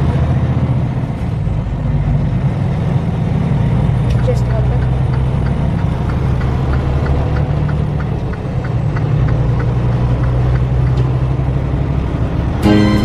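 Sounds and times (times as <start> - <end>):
truck engine drone: 0.0 - 13.0
light ticking: 4.8 - 11.2.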